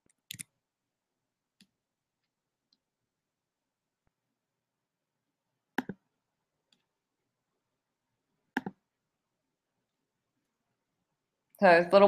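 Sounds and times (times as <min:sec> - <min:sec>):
computer mouse clicks: 0:00.0 - 0:00.5, 0:05.8 - 0:06.0, 0:08.5 - 0:08.8.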